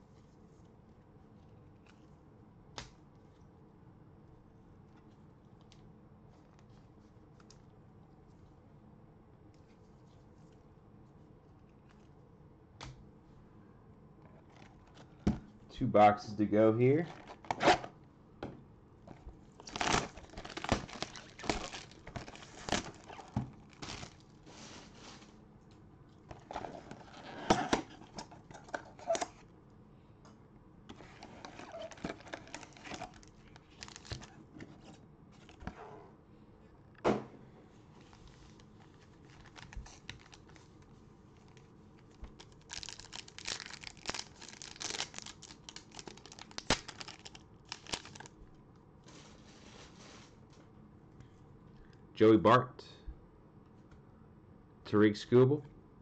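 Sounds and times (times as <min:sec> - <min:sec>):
foil wrappers crinkling and tearing: 0:19.1 - 0:25.0, 0:31.0 - 0:34.4, 0:38.0 - 0:48.4.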